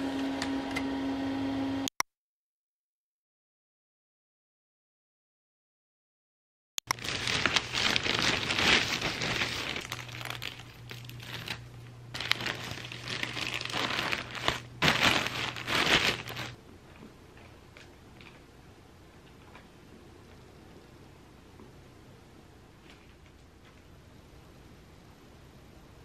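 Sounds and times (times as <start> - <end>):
plastic mailer bag crinkling: 6.9 - 16.6.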